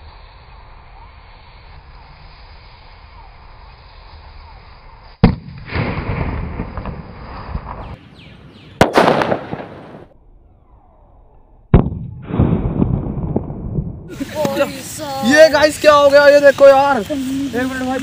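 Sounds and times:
plastic bottles bursting with bangs: 5.2s - 6.7s, 8.8s - 9.8s.

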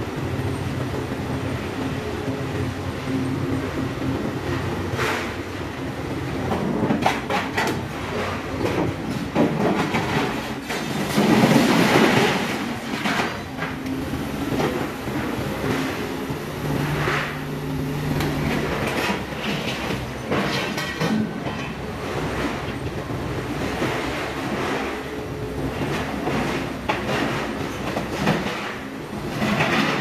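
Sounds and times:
metal clanks and bangs: 8.6s - 21.8s
crane humming: 10.2s - 20.8s.

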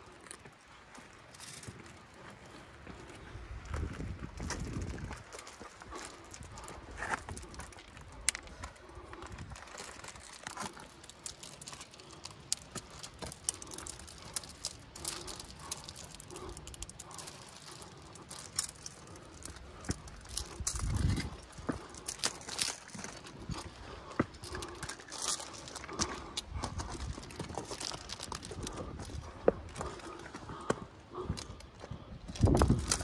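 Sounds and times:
small stones skittering: 9.4s - 23.4s, 24.4s - 29.3s.

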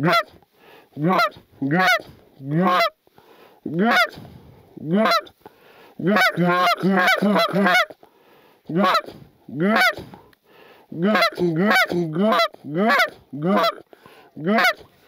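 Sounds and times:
geese honking: 0.0s - 0.3s, 1.0s - 3.0s, 3.7s - 4.2s, 4.9s - 5.3s, 6.0s - 8.0s, 8.7s - 10.0s, 11.0s - 14.9s.

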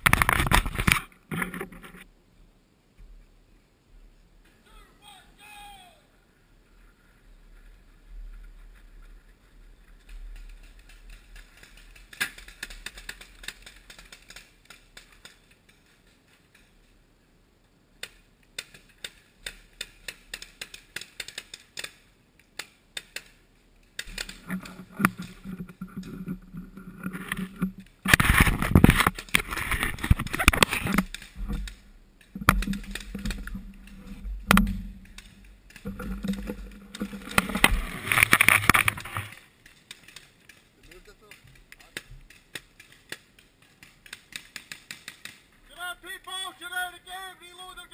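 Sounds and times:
paintball markers popping: 28.1s - 45.5s.

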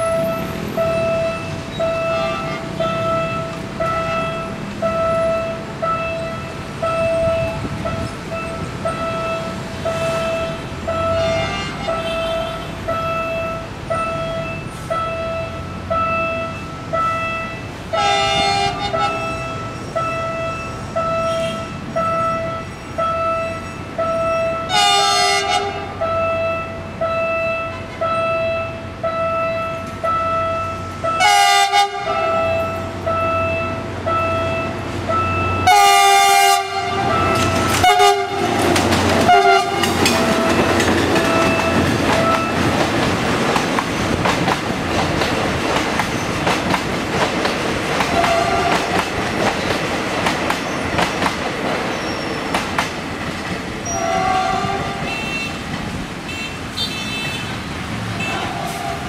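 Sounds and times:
locomotive horn: 0.0s - 42.8s, 48.0s - 49.1s, 53.8s - 59.0s
train rumble: 0.0s - 59.0s
warning signal beeping: 40.2s - 42.8s.

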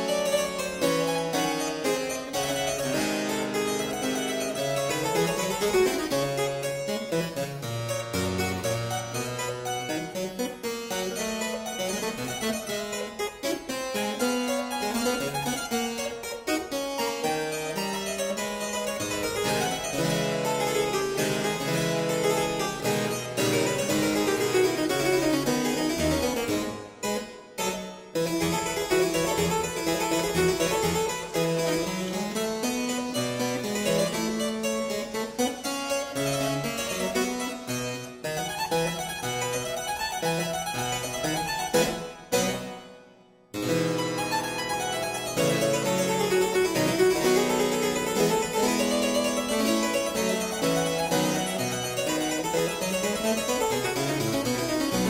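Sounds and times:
keyboard instrumental music: 0.0s - 55.0s.

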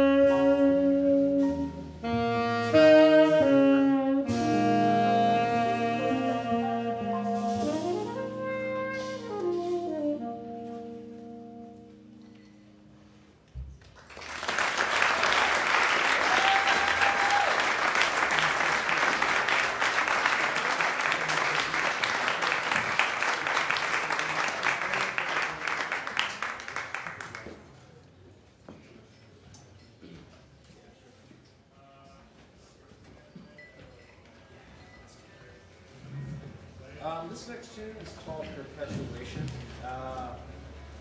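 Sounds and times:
jazz chord on tenor saxophone: 0.0s - 13.4s
audience applauding: 13.8s - 27.6s
whistle in applause: 14.2s - 26.4s.

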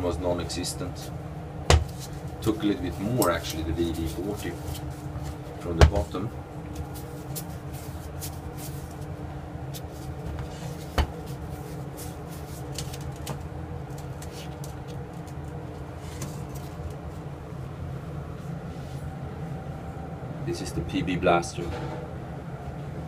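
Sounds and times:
low background hum: 0.0s - 23.0s
clicks and rustling of gloved hands: 9.7s - 17.1s.

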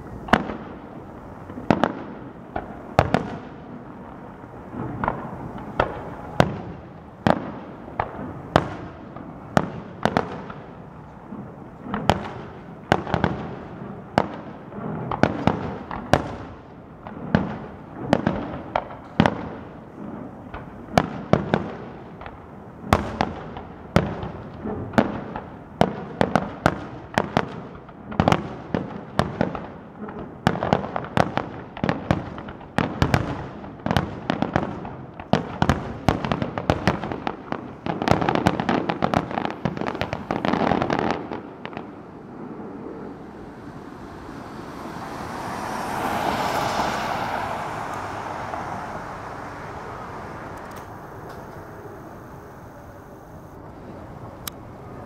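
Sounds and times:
firework shells bursting: 36.2s - 53.6s.

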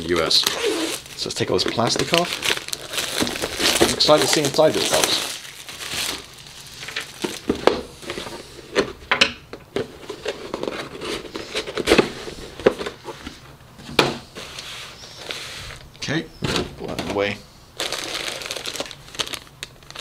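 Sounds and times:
cardboard and shrink-wrap crinkling: 0.0s - 8.4s, 17.8s - 20.0s.

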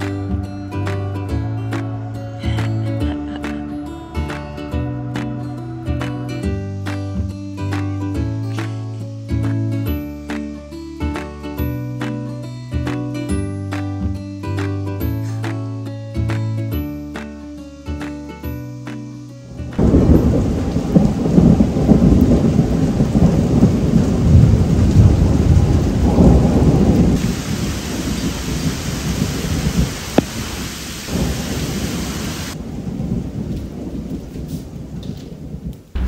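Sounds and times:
heavy rain: 0.0s - 36.0s
thunder rumbling: 19.7s - 36.0s.

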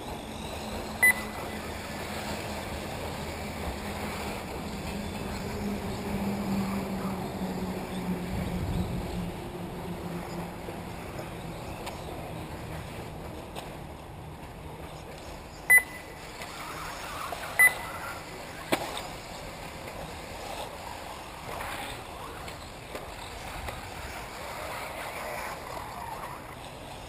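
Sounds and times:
rc cars running: 0.0s - 9.2s, 15.4s - 27.0s
high electronic beeps: 1.0s - 1.6s, 15.7s - 16.1s, 17.6s - 17.9s.

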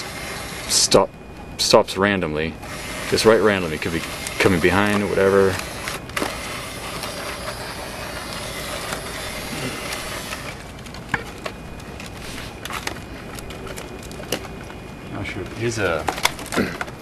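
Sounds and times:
small toy motor whirring: 0.0s - 1.1s, 2.5s - 10.8s.

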